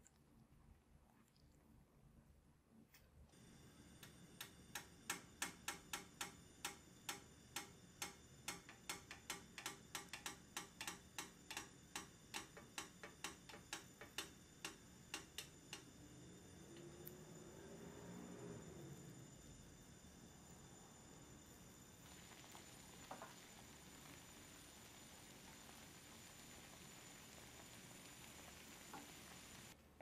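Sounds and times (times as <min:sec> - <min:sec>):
bread crackling in frying pan: 0:21.8 - 0:29.8.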